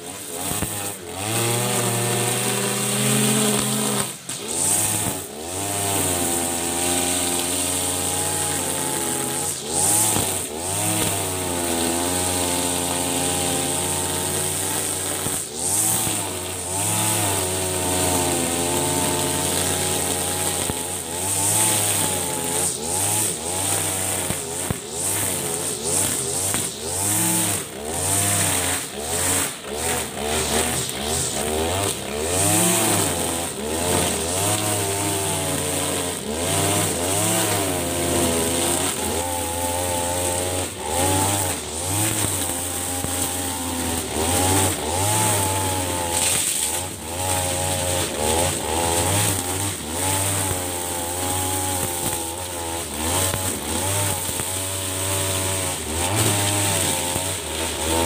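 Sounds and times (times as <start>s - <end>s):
brush cutter engine cutting grass: 0.0s - 58.0s.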